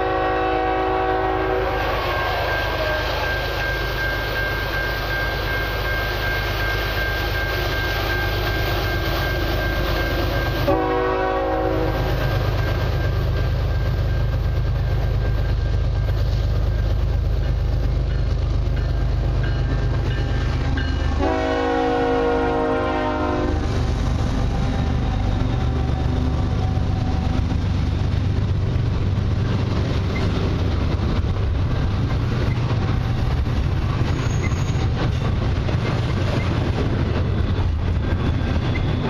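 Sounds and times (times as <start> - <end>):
train air horn blasts: 0.0 - 3.2, 10.6 - 12.2, 21.1 - 23.8
diesel locomotive engine rumble: 0.0 - 39.0
crossing bell ringing: 1.4 - 23.7.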